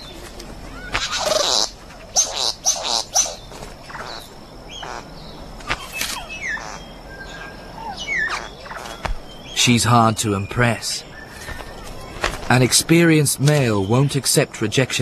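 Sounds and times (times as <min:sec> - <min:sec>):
bird harsh buzzing calls: 0:00.0 - 0:12.6
bird falling whistles: 0:05.6 - 0:06.6
bird short chirps: 0:05.7 - 0:09.1.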